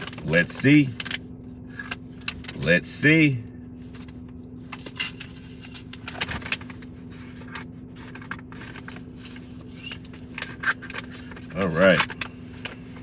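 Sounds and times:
steady low hum: 0.0s - 13.0s
paper rustling and crinkling: 3.8s - 13.0s.

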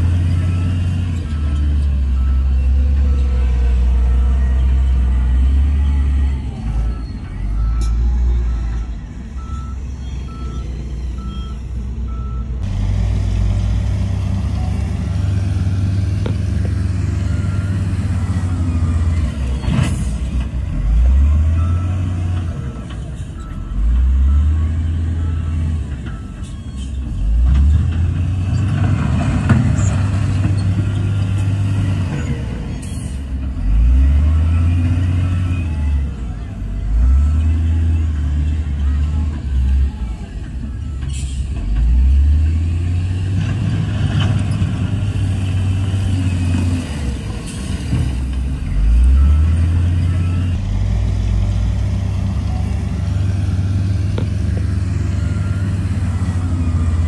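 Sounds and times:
diesel engine revving: 0.0s - 57.0s
reversing alarm beeping: 0.3s - 12.6s.

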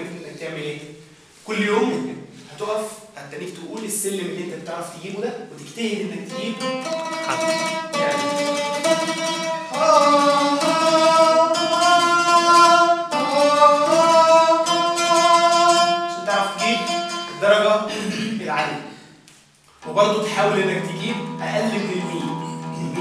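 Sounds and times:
oud plucking: 6.1s - 19.0s, 19.8s - 23.0s
man singing long notes: 7.3s - 18.3s.

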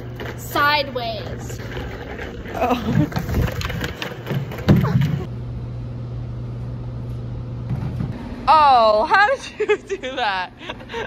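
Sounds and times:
knocks and clatter: 0.0s - 5.3s.

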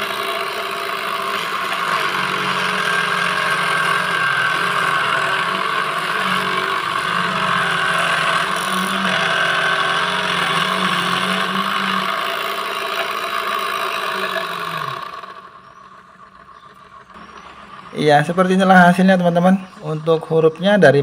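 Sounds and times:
blade cutting plastic rasp: 0.0s - 15.5s
small motor whining: 0.0s - 21.0s.

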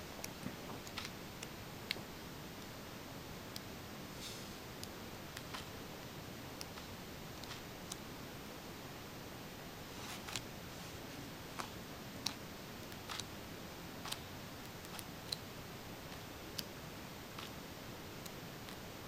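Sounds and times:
background hiss: 0.0s - 19.0s
book pages turning: 10.0s - 10.4s.

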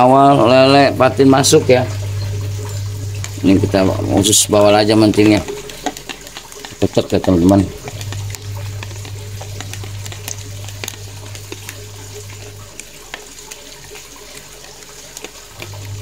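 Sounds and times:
low hum: 0.0s - 6.6s, 7.3s - 13.3s
spoon stirring wet mixture: 0.1s - 16.0s
spoon clicking against tub: 3.2s - 16.0s.

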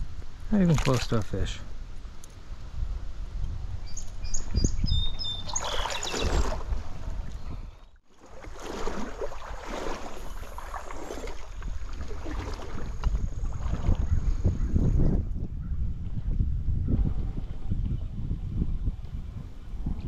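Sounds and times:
wind rumbling on microphone: 0.0s - 20.0s
water sloshing and splashing: 0.6s - 1.4s, 5.4s - 14.2s.

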